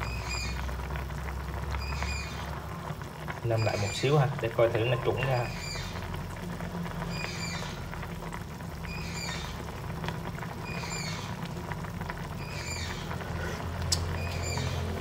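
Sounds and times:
sauce bubbling in a pan: 0:00.0 - 0:15.0.

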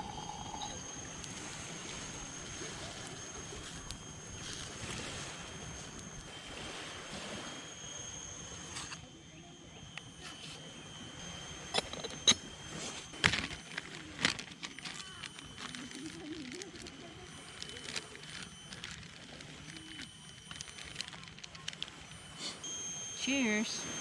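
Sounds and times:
plastic bag crinkling and clicking: 0:13.2 - 0:22.1.

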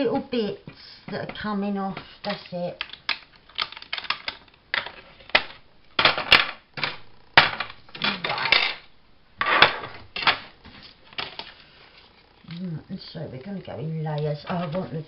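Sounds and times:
plastic clicks: 0:02.2 - 0:08.8.

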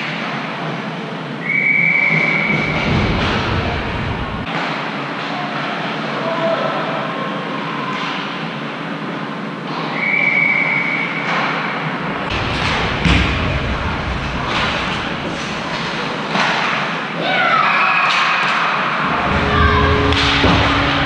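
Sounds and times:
heavy thud: 0:12.3 - 0:16.2, 0:19.1 - 0:21.0
skates scraping on ice: 0:12.3 - 0:17.0.

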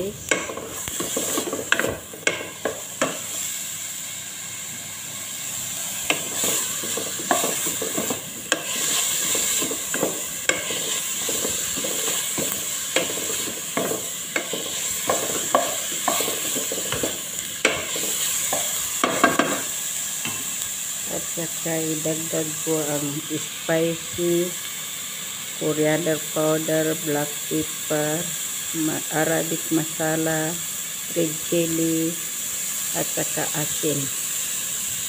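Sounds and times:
vegetables sizzling in oil: 0:00.0 - 0:35.0
wooden spatula scraping pot: 0:06.1 - 0:19.6.

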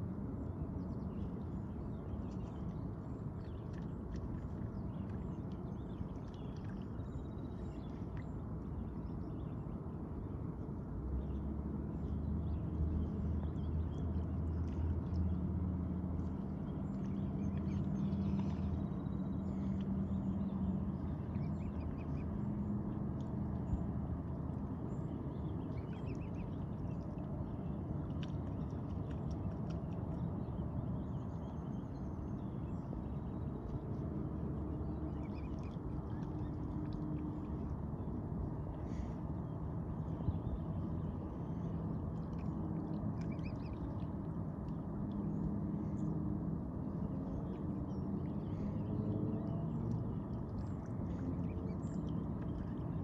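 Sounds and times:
low motor hum: 0:00.0 - 0:53.0
swans dabbling in water: 0:01.1 - 0:09.7, 0:11.8 - 0:53.0.

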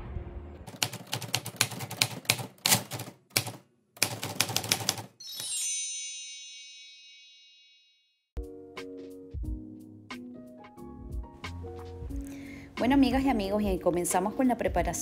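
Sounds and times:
typewriter key clacks: 0:00.7 - 0:05.1.

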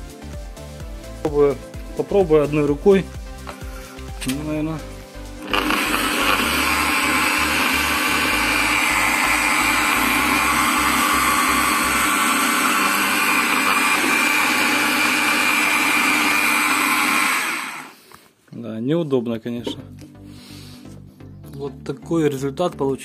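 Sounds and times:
electric polisher running: 0:05.4 - 0:18.0.

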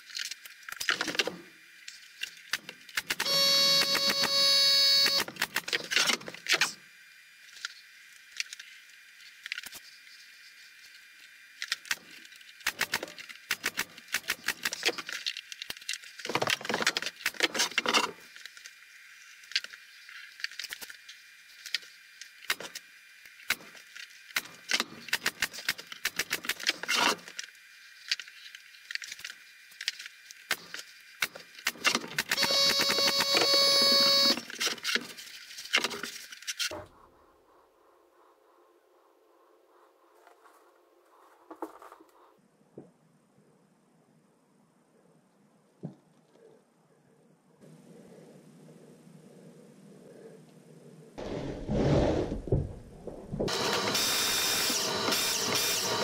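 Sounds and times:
power tool motor whining: 0:03.2 - 0:05.4, 0:32.3 - 0:34.7, 0:53.5 - 0:56.0.

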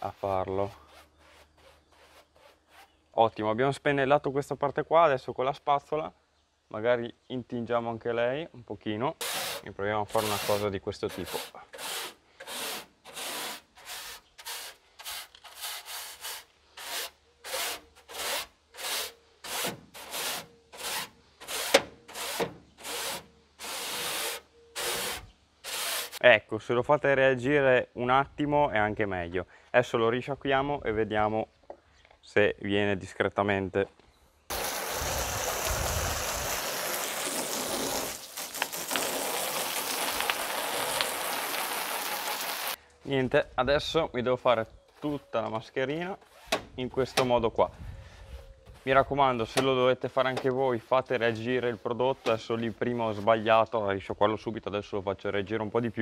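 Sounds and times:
scrub brush scrubbing a metal grille: 0:00.0 - 0:03.0, 0:09.2 - 0:26.2, 0:48.7 - 0:53.6
hose water spraying on metal: 0:34.5 - 0:42.8.

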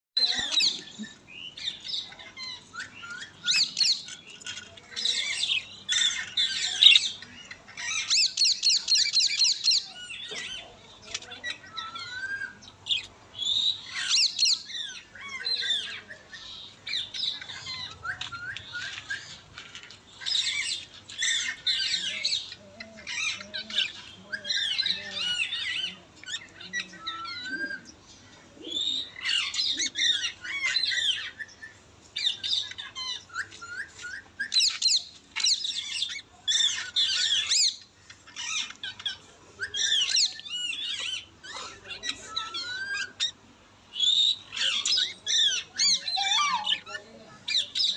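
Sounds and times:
parrot chattering squawks: 0:44.0 - 0:47.9.

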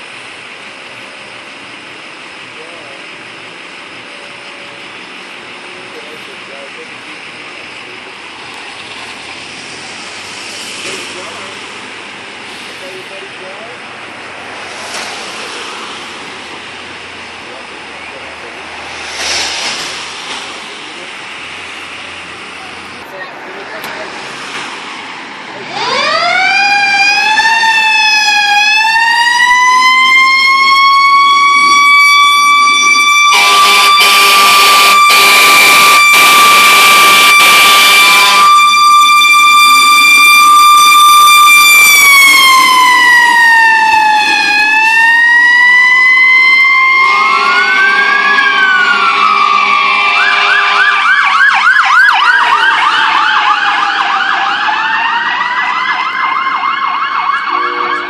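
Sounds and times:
fire truck siren wailing: 0:00.0 - 0:58.0
electronic siren yelping: 0:25.8 - 0:58.0
blaring horn blasts: 0:33.2 - 0:38.6, 0:47.0 - 0:51.1, 0:57.4 - 0:58.0.

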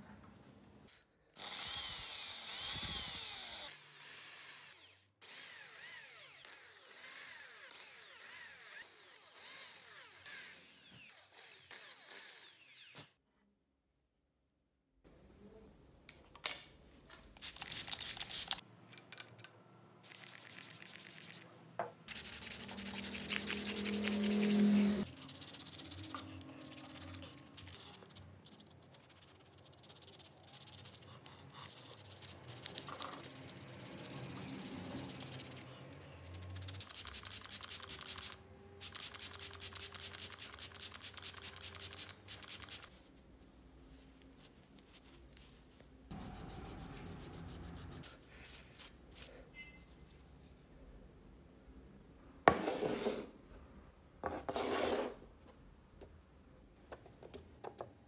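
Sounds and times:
hand tool scraping metal: 0:22.1 - 0:28.2.

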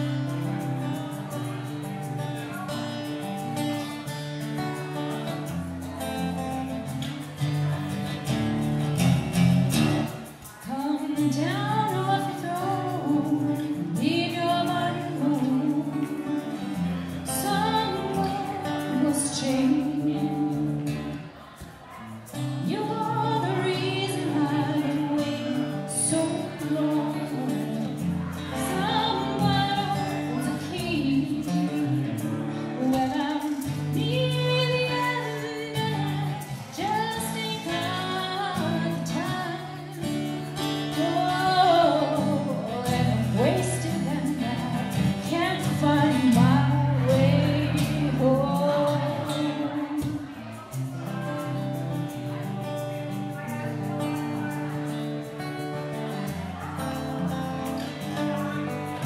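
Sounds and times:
acoustic guitar: 0:00.0 - 0:59.0
woman singing into a microphone: 0:10.6 - 0:21.4, 0:22.3 - 0:50.4.

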